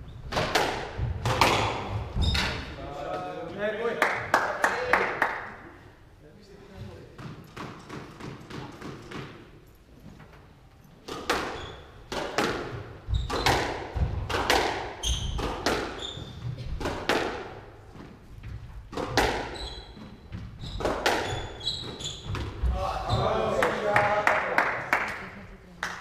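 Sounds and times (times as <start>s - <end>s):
squash ball hit by rackets: 0.3s - 2.6s, 7.2s - 9.5s, 11.0s - 17.7s, 18.6s - 19.6s, 20.3s - 22.6s
shoes squeaking on wooden floor: 1.5s - 2.8s, 9.9s - 14.4s, 15.0s - 17.0s, 17.8s - 23.5s.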